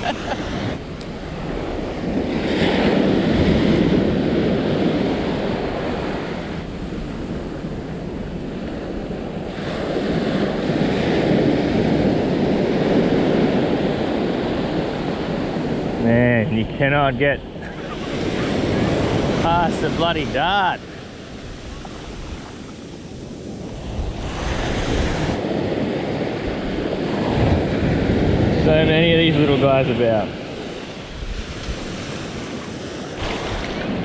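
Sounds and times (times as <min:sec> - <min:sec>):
surf washing over sand: 0:00.0 - 0:34.0
wind buffeting microphone: 0:00.0 - 0:34.0.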